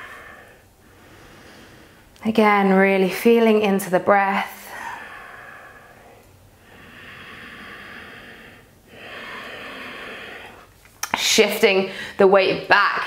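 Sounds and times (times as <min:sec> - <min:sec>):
woman breathing slowly: 0:00.0 - 0:02.2, 0:04.5 - 0:10.8, 0:11.8 - 0:12.2.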